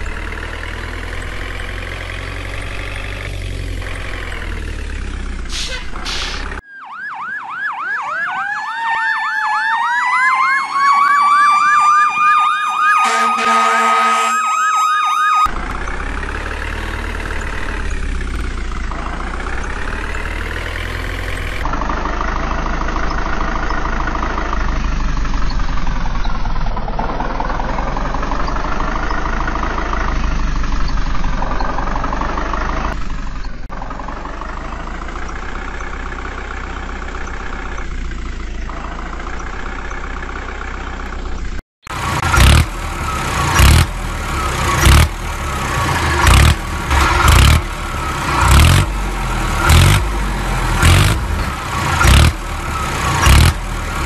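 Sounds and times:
tractor engine rumbling: 0:00.0 - 0:54.0
siren warbling and wailing: 0:06.6 - 0:15.6
short horn blare: 0:13.0 - 0:14.8.

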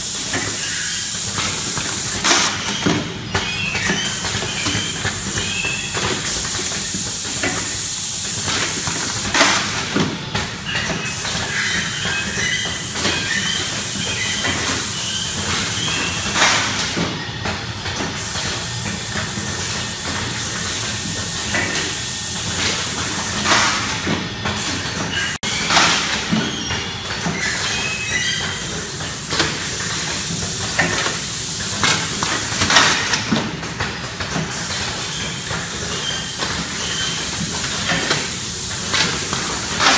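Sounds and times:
pneumatic cylinder air blast: 0:00.0 - 0:03.0, 0:03.7 - 0:09.9.

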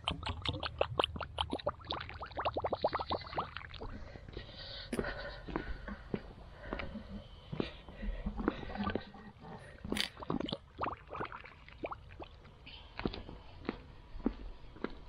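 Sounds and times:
water gurgling from hose: 0:00.0 - 0:03.9, 0:10.0 - 0:12.4.

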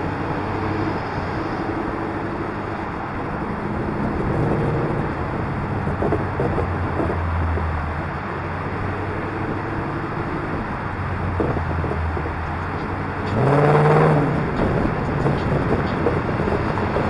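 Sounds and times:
car engine drone: 0:00.0 - 0:17.0
engine revving: 0:00.0 - 0:17.0
road noise: 0:00.0 - 0:17.0.

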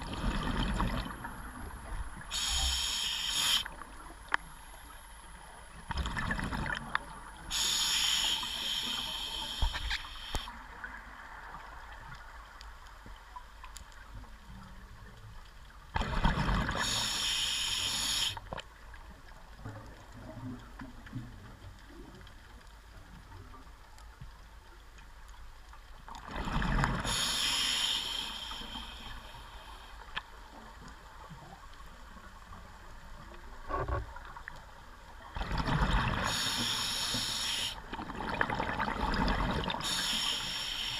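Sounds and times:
steady regulator hiss: 0:02.2 - 0:04.0, 0:07.5 - 0:10.5, 0:16.8 - 0:18.4, 0:27.0 - 0:30.2, 0:36.2 - 0:37.8, 0:39.8 - 0:40.9.

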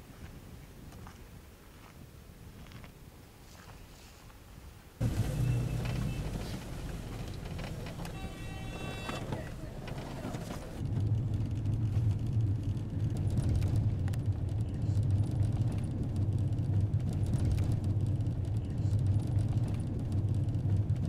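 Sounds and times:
vehicle engine and road noise: 0:05.0 - 0:21.0.

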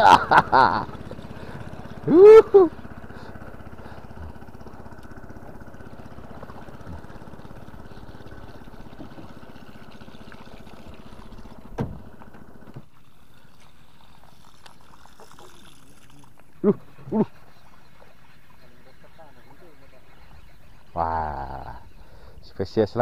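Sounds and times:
boat engine running: 0:00.0 - 0:23.0.

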